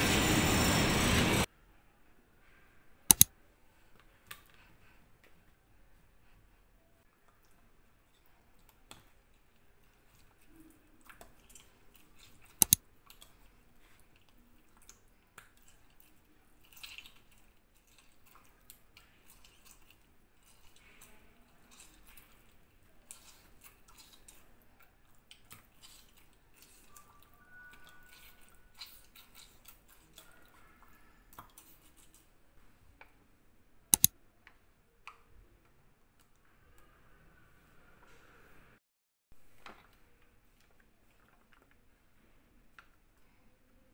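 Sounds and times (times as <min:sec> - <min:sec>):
sharp loud clicks: 0:03.1 - 0:03.3
hands squishing raw meat: 0:08.4 - 0:32.3.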